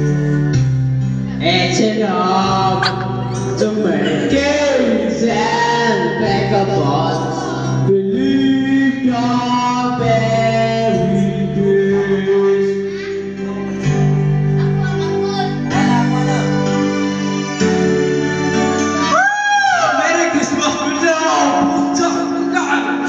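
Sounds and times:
music backing track: 0.0 - 23.0
young man singing: 1.3 - 14.1.

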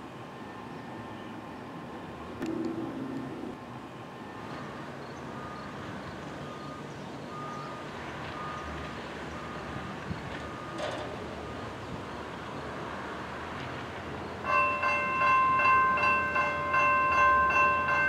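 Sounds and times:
outdoor background noise: 0.0 - 18.0.

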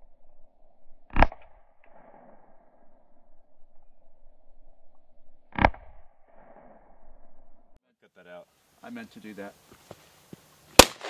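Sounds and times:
faint steady hiss: 7.9 - 11.0
pistol shot: 10.8 - 11.0.

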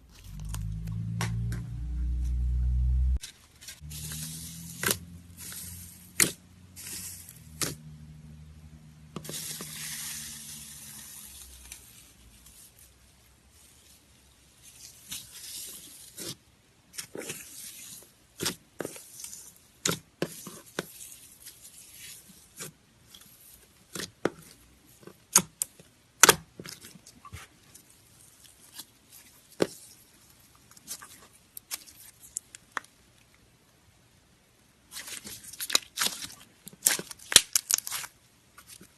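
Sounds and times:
foil crinkling: 34.9 - 38.9.

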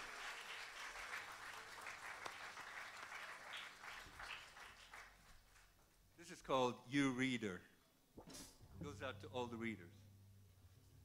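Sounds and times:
audience applause: 0.0 - 5.7.

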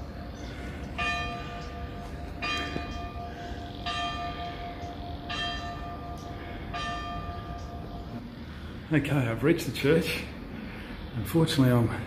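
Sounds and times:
church bell tolling: 0.0 - 8.2.

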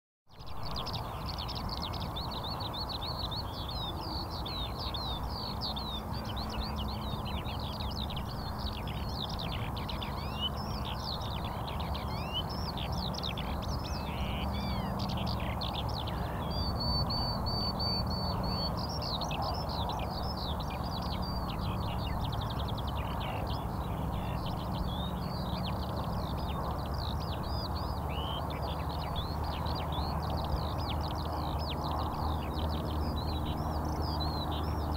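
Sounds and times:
small birds chirping: 0.3 - 34.9
low background noise: 0.4 - 34.9.

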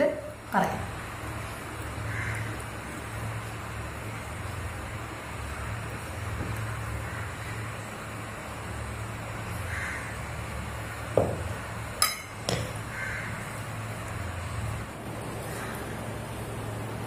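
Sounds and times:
steady low hum: 0.0 - 17.0
tableware clinking: 12.0 - 12.7.

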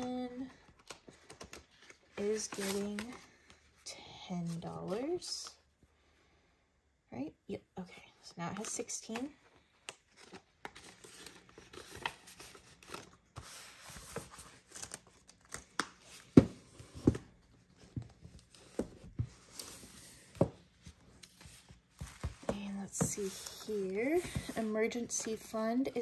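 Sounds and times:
paper bills rustling: 0.7 - 3.4.

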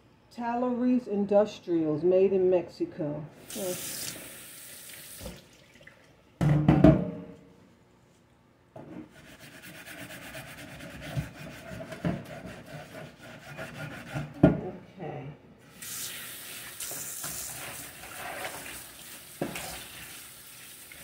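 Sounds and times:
tap water running: 3.4 - 6.1, 15.7 - 21.0.

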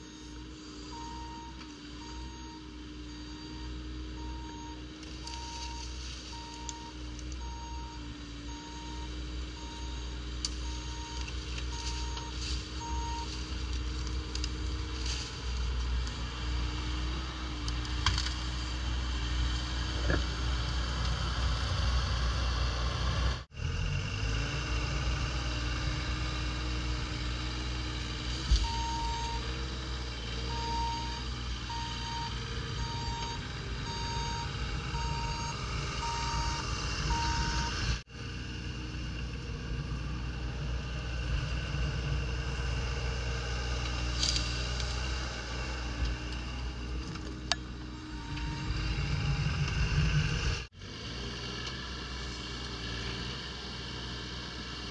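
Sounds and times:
travel alarm beeping: 0.0 - 13.4, 28.6 - 29.4, 30.5 - 38.0
excavator diesel engine running: 0.0 - 54.9.

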